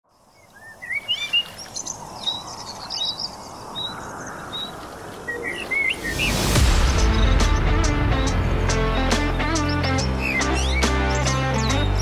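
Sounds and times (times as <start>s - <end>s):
outdoor ambience hiss: 0.0s - 7.6s
small birds chirping: 0.1s - 12.0s.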